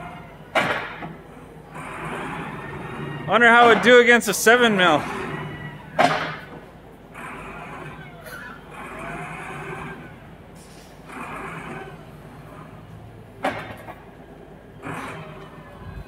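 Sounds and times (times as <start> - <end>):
diesel engine running: 0.0 - 16.0
metallic clunk: 13.4 - 14.1.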